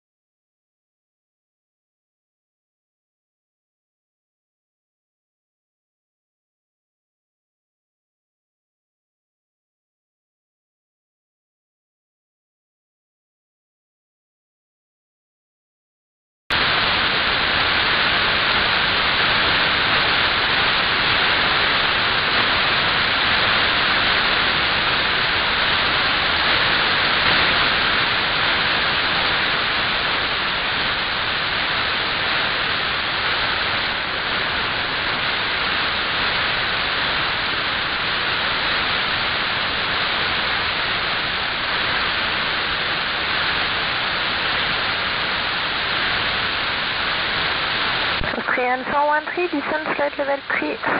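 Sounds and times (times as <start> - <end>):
radio static hiss: 16.5 - 50.9.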